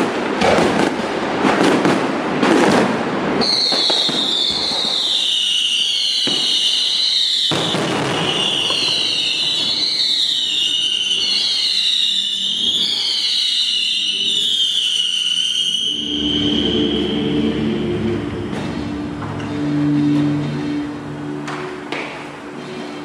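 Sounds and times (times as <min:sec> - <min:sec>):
fireworks bangs: 0:00.0 - 0:22.5
fireworks crackling: 0:00.0 - 0:22.5
shrill falling whistle: 0:03.4 - 0:18.7.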